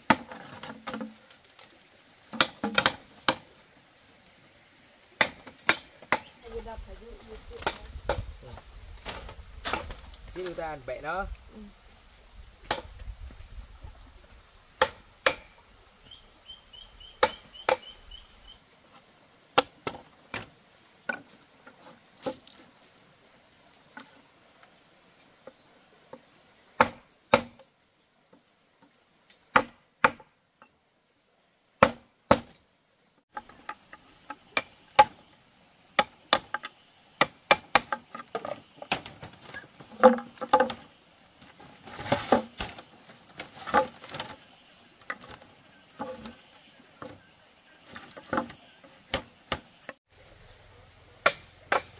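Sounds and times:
bamboo being chopped: 2.2 - 3.4, 5.2 - 6.4, 7.5 - 8.3, 9.0 - 10.6, 12.6 - 12.9, 14.8 - 15.6, 17.2 - 17.9, 19.6 - 20.5, 26.8 - 27.7, 29.5 - 30.3, 31.8 - 32.6, 34.5 - 35.2, 36.0 - 40.9, 41.9 - 42.8, 51.2 - 51.9.

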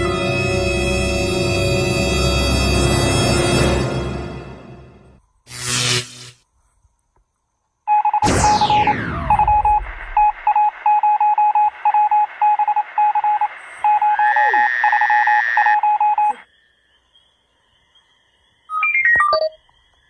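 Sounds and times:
short electronic beeps: 7.9 - 16.4
rising electronic tone: 8.2 - 10.5.

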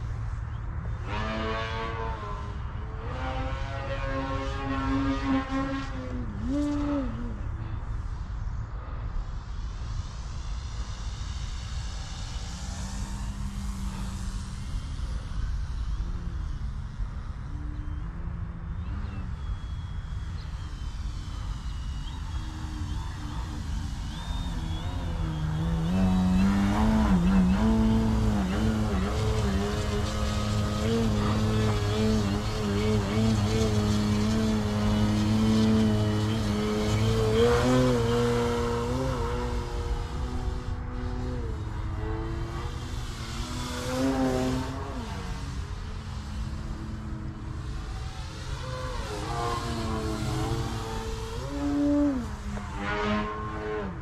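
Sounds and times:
model plane motor whining: 18.9 - 53.9.

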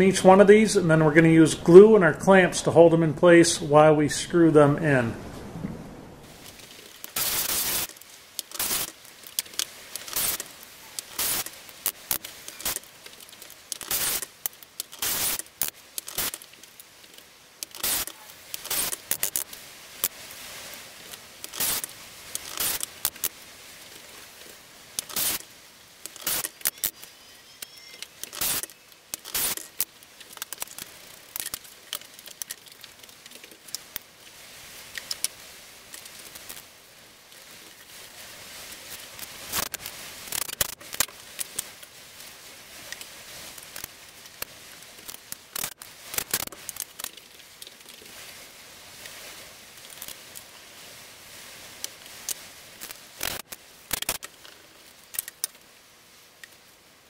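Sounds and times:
wood and plastic clicks and rattles: 7.8 - 11.2, 28.0 - 36.6, 42.9 - 48.2, 51.8 - 55.6.

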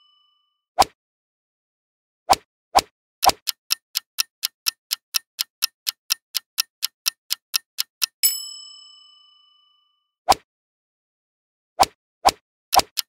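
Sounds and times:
bell ding: 0.0 - 0.5, 8.2 - 10.1
clock ticking: 3.2 - 8.3, 12.7 - 13.0.

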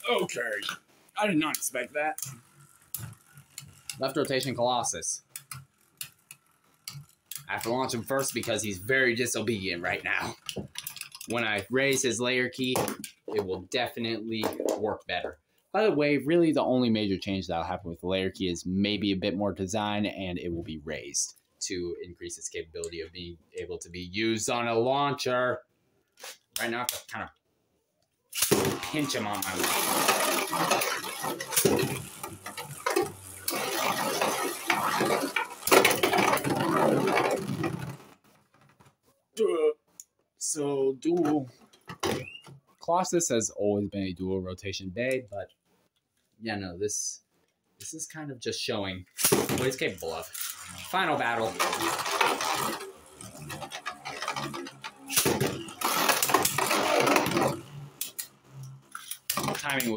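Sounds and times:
spinning tops scraping on plastic: 1.5 - 13.4, 28.3 - 39.0, 49.0 - 59.9
spinning tops clacking together: 28.4 - 37.9, 49.1 - 59.9.

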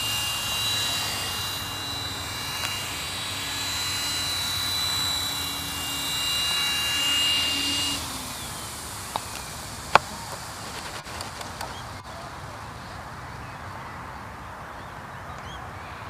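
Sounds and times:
electric motor and rotor spinning down: 0.0 - 12.1
steady outdoor hiss: 0.0 - 16.0.

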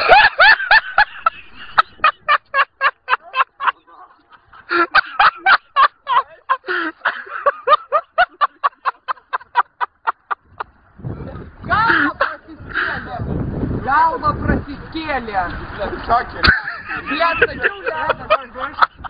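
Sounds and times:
man laughing hard: 0.0 - 10.7, 16.4 - 19.0.

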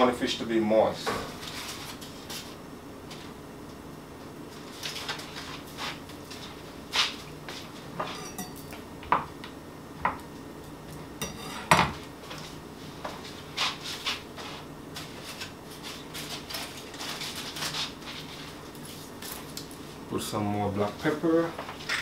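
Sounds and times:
aluminium foil rustling: 1.4 - 2.6, 4.6 - 7.2, 15.0 - 20.0
utensils and dishes clinking: 8.0 - 8.8.

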